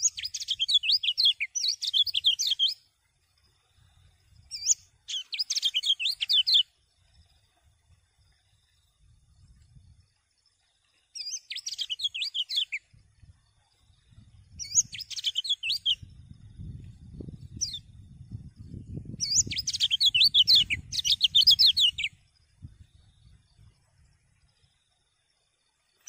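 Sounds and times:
bird twittering: 0.0s - 2.8s, 4.5s - 6.6s, 11.2s - 12.8s, 14.6s - 16.0s, 19.2s - 22.1s.

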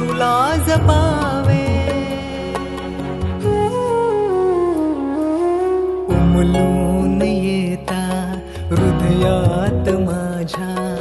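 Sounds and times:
low bass line: 0.0s - 4.0s
flute melody: 0.4s - 7.0s.

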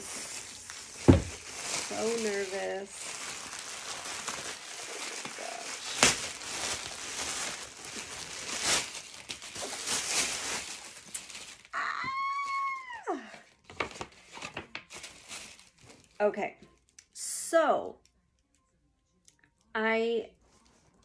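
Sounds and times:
plastic bag crinkling: 0.0s - 11.8s, 13.6s - 16.2s
woman squealing: 11.8s - 13.4s.

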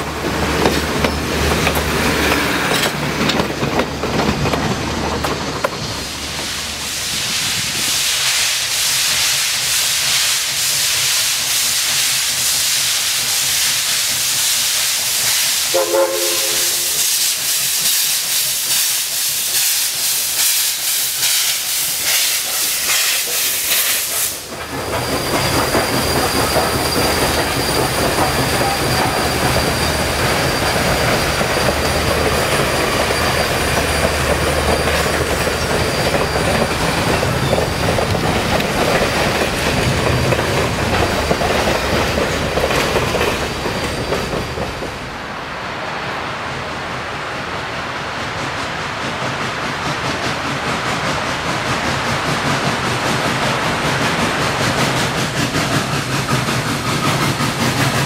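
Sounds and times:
steam locomotive exhaust chuffs: 0.0s - 45.1s, 48.2s - 58.0s
rail cars rumbling and clattering: 0.0s - 58.0s
steam hissing: 4.8s - 45.4s, 48.0s - 58.0s
steam whistle: 15.7s - 17.4s.

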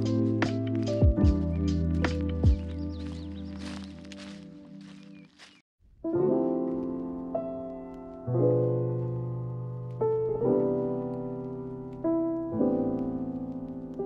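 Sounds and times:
slow piano chords: 0.0s - 5.4s, 6.0s - 14.0s.

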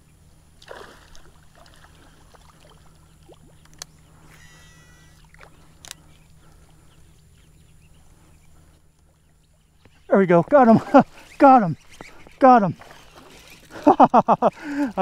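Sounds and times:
water splashing: 0.6s - 3.6s
brief warbling whine: 4.3s - 5.4s
steady low rumble: 5.2s - 12.4s.

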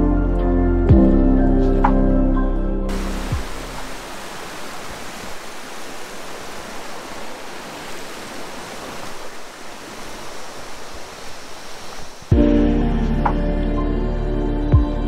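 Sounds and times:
stream rushing over boulders: 2.9s - 12.4s.

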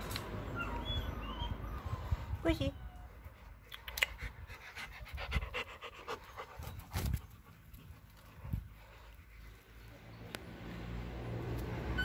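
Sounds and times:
dog panting: 4.0s - 9.8s.

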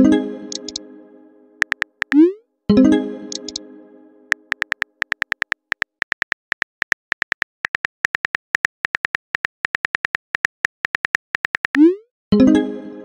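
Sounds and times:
phone keyboard typing clicks: 0.5s - 0.8s, 1.6s - 2.2s, 3.3s - 3.6s, 4.3s - 11.8s.

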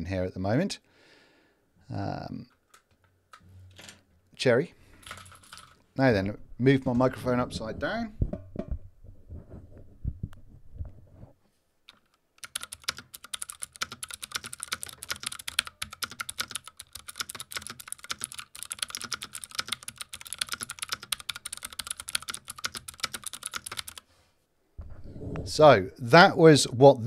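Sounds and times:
typing on clicky mechanical keyboard: 5.1s - 5.8s, 11.9s - 24.0s
microphone handling bumps: 6.3s - 11.4s, 24.8s - 26.0s.

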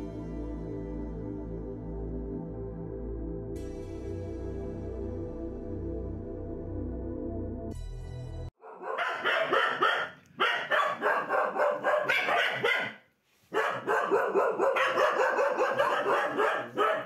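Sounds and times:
small dogs barking: 8.6s - 17.0s.

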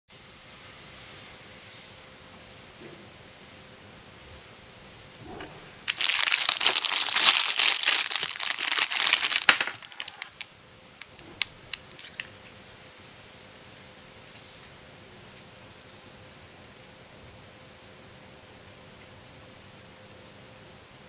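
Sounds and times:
plastic bag crinkling: 5.8s - 12.3s.

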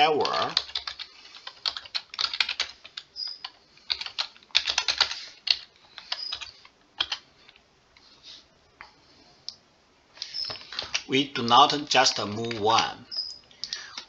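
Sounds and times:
typing on computer keyboard: 0.0s - 7.3s, 10.2s - 14.0s.

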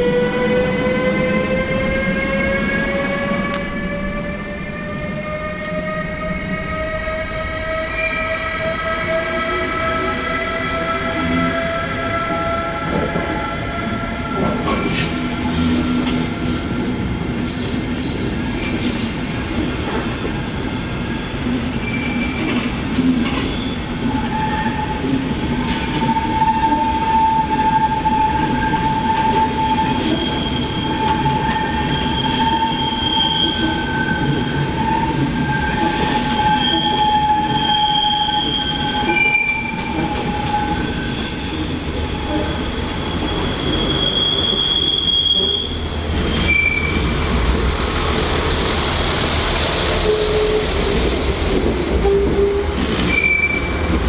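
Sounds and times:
train wheels squealing: 17.5s - 19.0s, 21.1s - 22.7s, 23.4s - 25.0s, 25.6s - 47.8s, 52.0s - 54.0s
train rumble: 38.6s - 54.0s.

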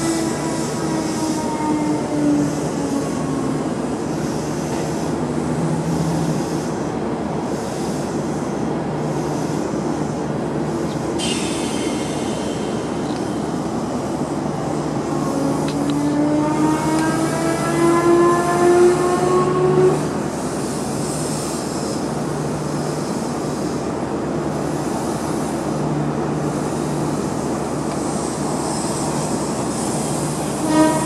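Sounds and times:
train motor whine: 0.0s - 7.0s, 9.2s - 20.5s
train wheels rumbling on rails: 0.0s - 31.0s.

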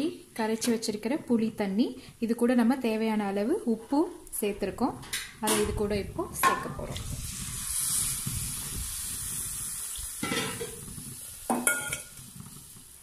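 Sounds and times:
liquid sizzling in hot pan: 6.4s - 13.0s
steel spoon stirring in pan: 7.3s - 12.9s.

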